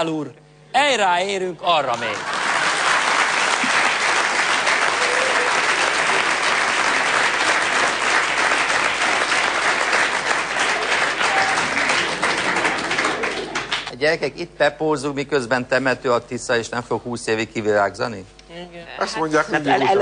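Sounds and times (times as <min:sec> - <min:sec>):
audience applauding: 0:01.9 - 0:14.0.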